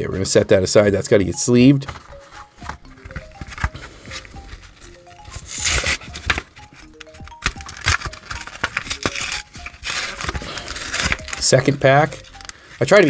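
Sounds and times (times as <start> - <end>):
soft background music: 0.0 - 13.0
foil wrapper crinkling and tearing: 4.6 - 13.0.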